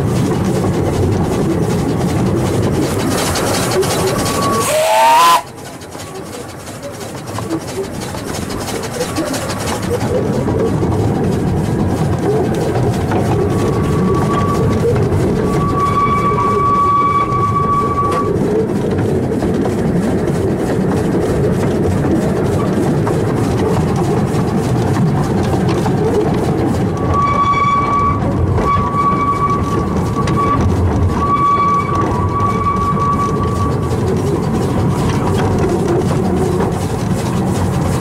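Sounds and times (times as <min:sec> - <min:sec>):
steam locomotive rumbling: 0:00.0 - 0:38.0
train whistle: 0:04.2 - 0:05.5, 0:15.4 - 0:18.3, 0:27.1 - 0:30.6, 0:31.2 - 0:33.7.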